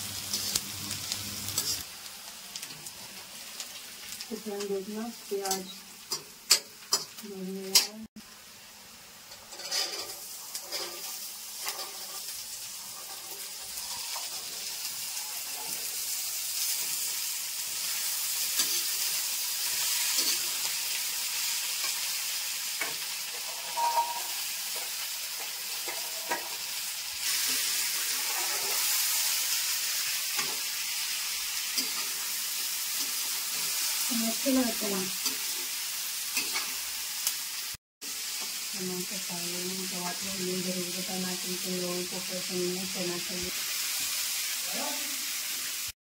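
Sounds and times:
chickpeas sizzling in oil: 0.0 - 46.0
metal spoon scraping a pan: 0.2 - 1.9, 9.3 - 15.9, 22.8 - 29.2, 31.7 - 34.1, 36.4 - 36.8.

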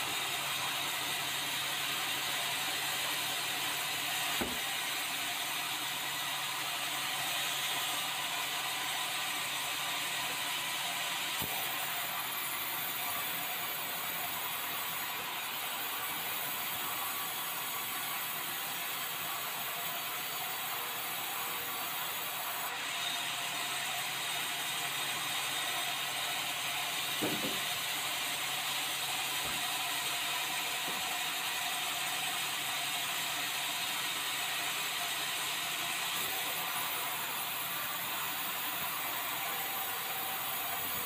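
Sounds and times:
bandsaw cutting wood: 0.0 - 41.0.

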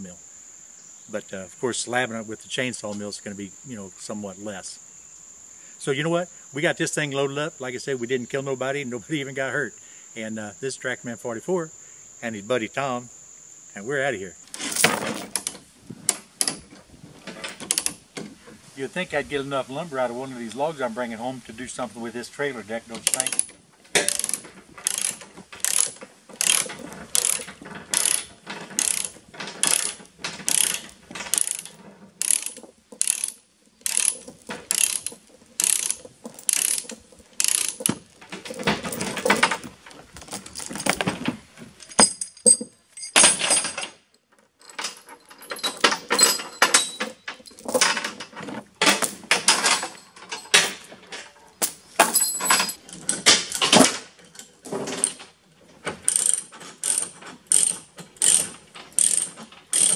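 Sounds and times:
rough chain handling noise: 14.3 - 59.9
ratchet chain binder clicking: 14.5 - 18.3, 22.9 - 43.9, 44.6 - 59.9.

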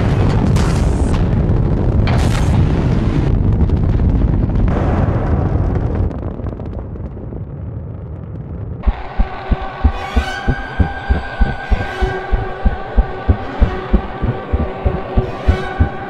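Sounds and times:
rocket engines rumbling: 8.6 - 16.0.

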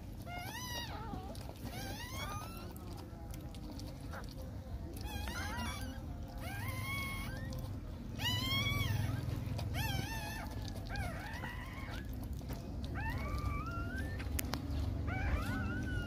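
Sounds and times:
puppies squealing and whimpering: 0.0 - 16.0.

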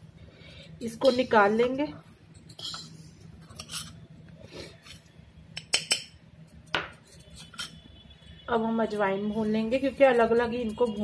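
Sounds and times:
steel spoon clinking on metal: 5.6 - 7.8, 9.4 - 11.0.

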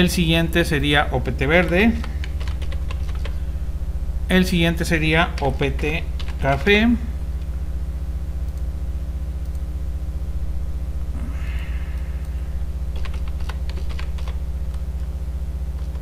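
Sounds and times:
steady low hum: 0.0 - 16.0
typing on a keyboard: 1.6 - 3.4, 5.3 - 6.8, 12.9 - 14.4.

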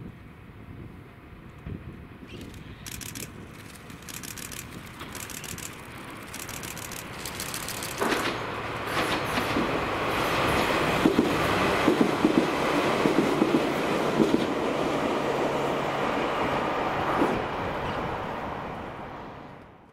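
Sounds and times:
electric train running past: 0.3 - 19.8
train wheels clicking over rail joints: 2.3 - 14.5.

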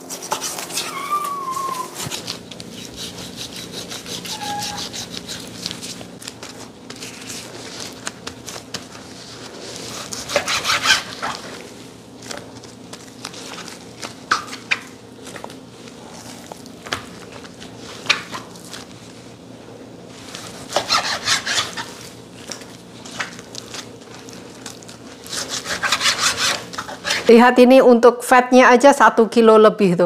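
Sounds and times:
knife sawing through meat: 2.7 - 5.9, 10.0 - 11.3, 20.7 - 22.0, 25.3 - 27.3.

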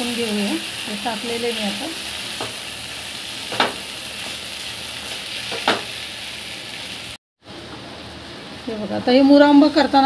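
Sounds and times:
mango sizzling in hot ghee: 0.0 - 10.0
spatula knocking on pan: 3.5 - 3.8.

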